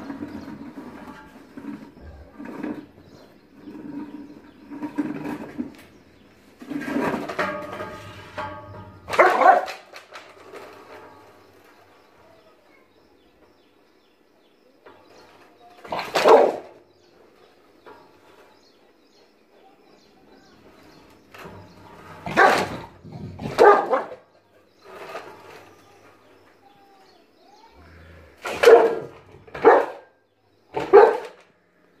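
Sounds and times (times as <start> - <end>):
dog barking aggressively: 9.1 - 9.9, 15.9 - 16.8, 22.2 - 24.3, 28.4 - 30.1, 30.7 - 31.4.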